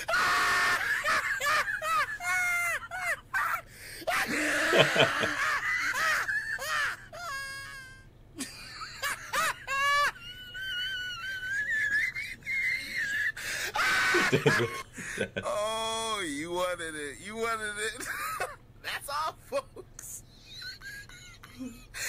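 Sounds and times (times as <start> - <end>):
laughter: 0.2 - 7.6, 8.4 - 15.5, 19.6 - 22.0.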